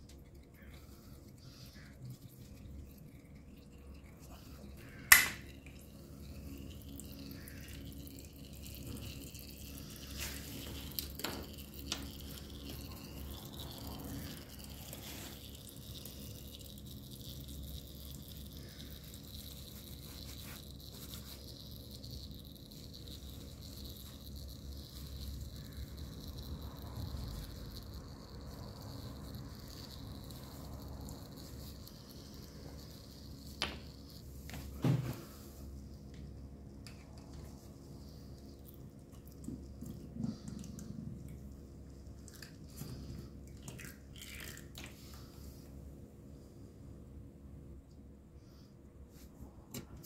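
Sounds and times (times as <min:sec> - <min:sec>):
oil trickling into pan: 0:00.0 - 0:34.3.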